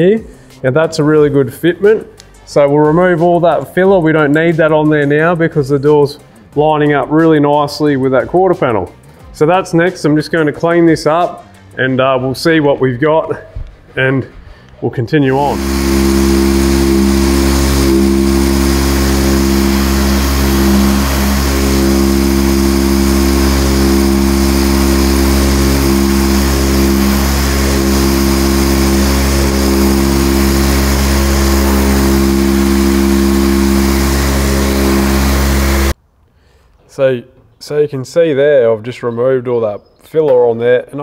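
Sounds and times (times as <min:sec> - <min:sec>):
orbital sander whining: 0:15.3 - 0:36.0.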